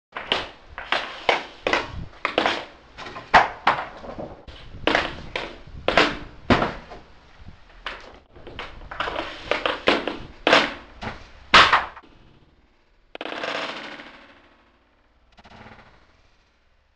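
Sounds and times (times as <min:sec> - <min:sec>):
hockey stick clacking a puck: 0:00.2 - 0:04.2, 0:04.9 - 0:06.7, 0:07.9 - 0:12.0.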